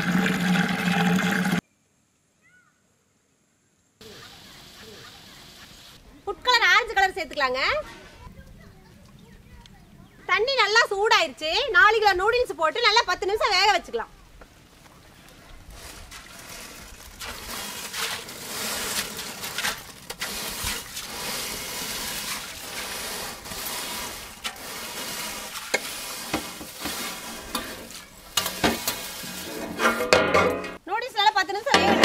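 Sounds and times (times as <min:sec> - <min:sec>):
hot water hissing and bubbling: 0:00.0 - 0:01.6, 0:15.0 - 0:30.8
noodles clattering on metal: 0:16.0 - 0:30.8, 0:31.6 - 0:32.0.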